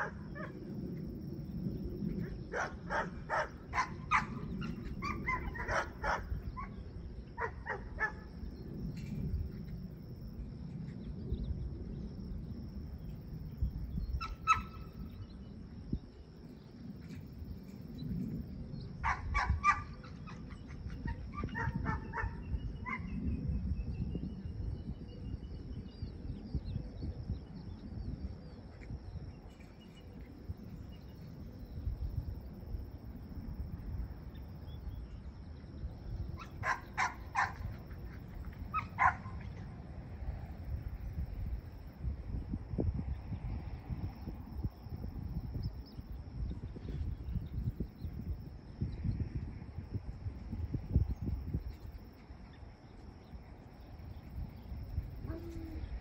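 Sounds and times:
dog barking: 2.5s - 4.4s, 5.0s - 6.3s, 7.4s - 8.2s, 19.0s - 19.9s, 21.5s - 22.4s, 36.4s - 37.6s, 38.8s - 39.4s.

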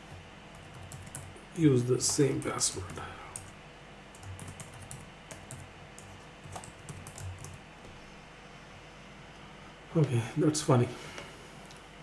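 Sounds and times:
faint keyboard typing: 0.5s - 1.4s, 2.0s - 8.0s.

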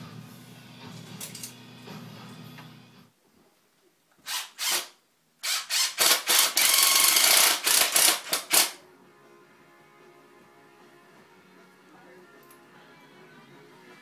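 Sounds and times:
cordless drill running into wood: 4.2s - 8.8s.

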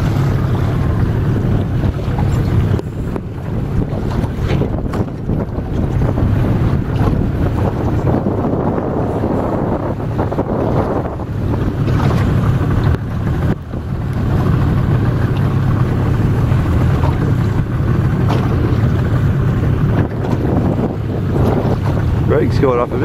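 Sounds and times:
choppy water splashing: 0.0s - 23.0s
wind buffeting microphone: 0.0s - 23.0s.

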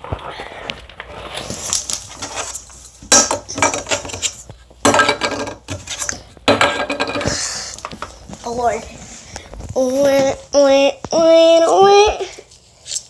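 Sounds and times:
toys clattering on plastic: 3.1s - 8.2s.

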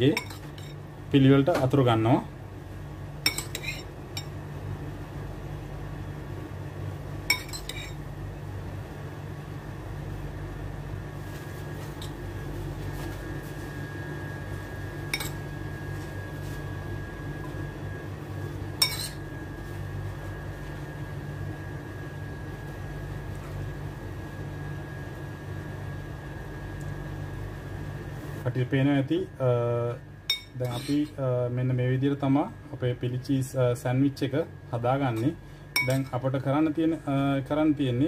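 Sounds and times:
steady low hum: 0.0s - 38.0s
spoon clinking against ceramic bowl: 0.1s - 0.8s, 3.2s - 4.3s, 7.3s - 8.0s, 15.1s - 15.4s, 18.8s - 19.2s, 30.3s - 31.1s, 35.8s - 36.1s.

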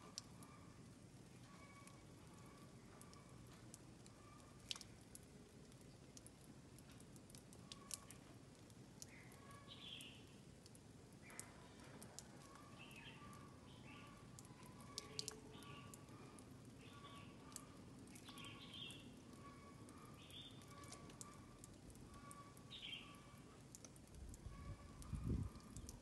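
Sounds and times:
faint bird chirps: 1.4s - 3.4s, 4.1s - 4.7s, 9.0s - 10.3s, 12.4s - 23.5s, 24.5s - 26.0s.

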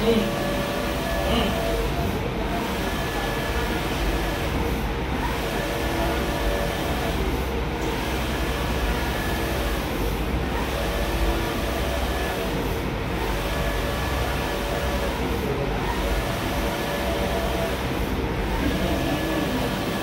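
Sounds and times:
printer machine hum: 0.0s - 20.0s.

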